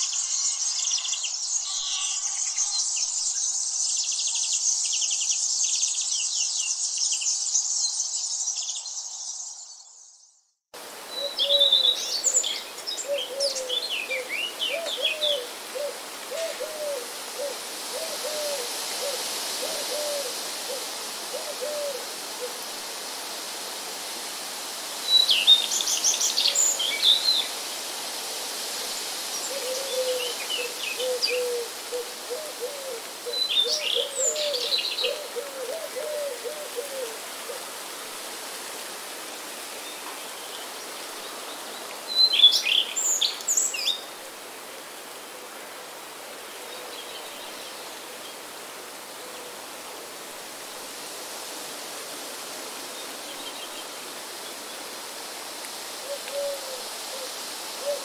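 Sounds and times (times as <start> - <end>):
birds chirping and trilling: 0.0 - 10.3
steady hiss: 10.8 - 58.0.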